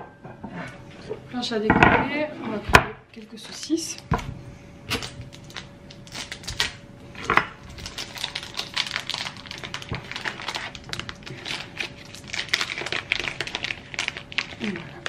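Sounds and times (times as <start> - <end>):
plastic packet tearing and crinkling: 4.9 - 6.8, 7.6 - 15.0.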